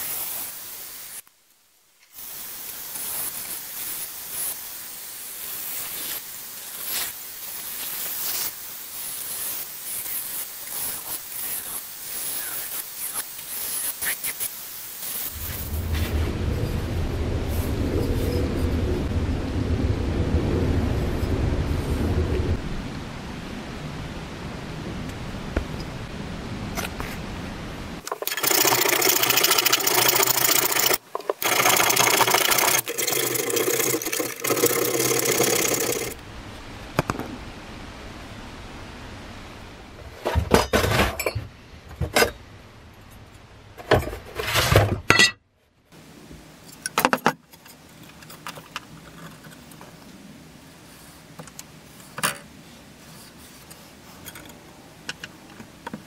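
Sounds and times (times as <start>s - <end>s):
power tool running: 28.1s - 36.2s.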